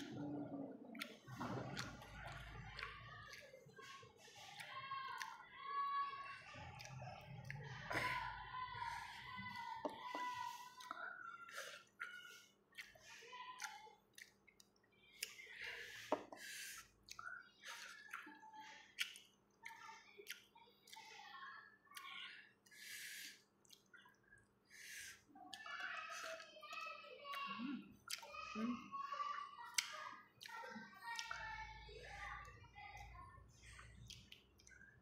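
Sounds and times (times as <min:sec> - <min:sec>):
wet chewing: 0:00.0 - 0:21.2, 0:21.9 - 0:28.4, 0:29.6 - 0:35.0
lip smacks: 0:00.9 - 0:05.5, 0:10.0 - 0:21.1, 0:21.9 - 0:25.7, 0:27.3 - 0:28.4.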